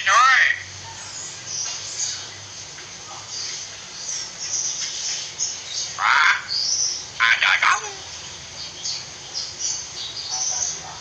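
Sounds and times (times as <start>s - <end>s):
loud harsh bird call: 5.8s - 8.2s.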